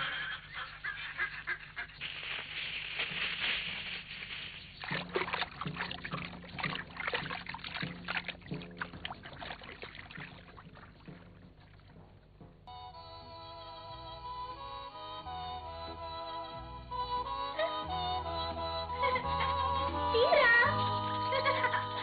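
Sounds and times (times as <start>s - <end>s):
splashing in water: 1.5s - 12.7s
rustling hiss of snake in grass: 1.9s - 4.9s.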